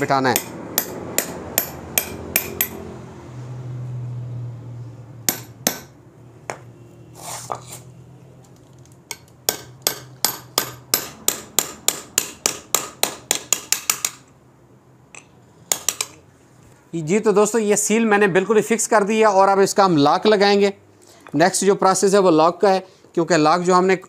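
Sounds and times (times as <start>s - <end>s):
hammer tapping on metal socket: 0.3s - 2.8s, 9.1s - 14.2s.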